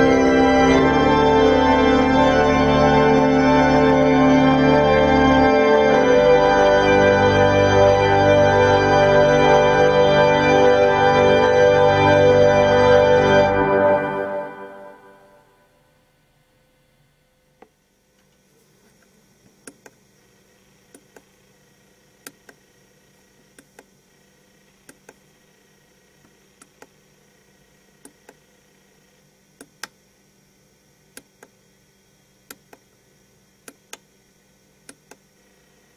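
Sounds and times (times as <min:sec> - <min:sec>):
faint steady hum: 0:00.0 - 0:35.9.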